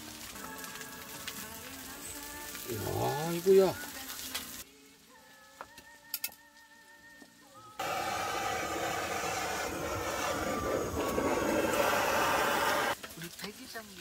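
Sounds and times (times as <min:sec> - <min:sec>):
faint soft music: 0:00.0 - 0:07.8
butane torch hissing: 0:07.8 - 0:13.0.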